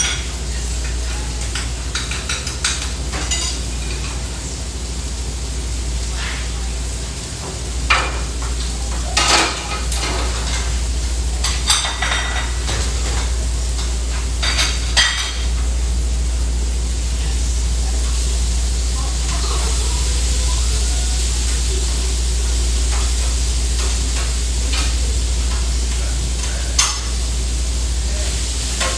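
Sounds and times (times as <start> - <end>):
food sizzling on griddle: 0.0 - 28.9
steady low hum: 0.0 - 28.9
metal pans clattering: 11.4 - 15.6.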